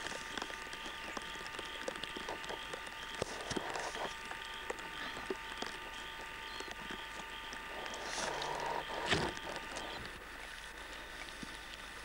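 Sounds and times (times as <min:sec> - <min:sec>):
light rain pattering: 0:00.0 - 0:08.6
faint electrical hum: 0:00.0 - 0:12.0.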